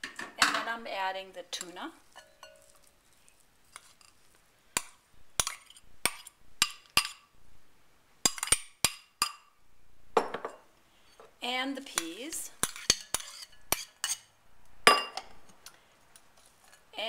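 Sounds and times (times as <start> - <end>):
metal spoon clinking on bowls: 1.6 - 3.0, 12.0 - 14.3, 14.9 - 15.3.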